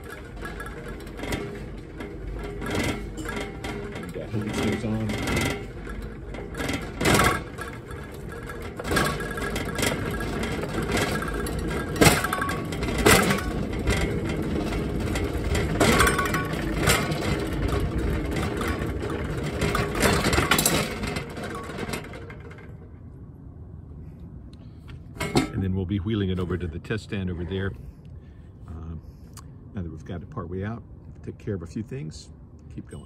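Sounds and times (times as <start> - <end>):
sharp knocks and clinks: 0.0 - 22.4
metal frame rattling: 0.0 - 23.2, 25.0 - 27.6
pallet jack wheels rumbling: 0.0 - 24.1, 24.7 - 32.5.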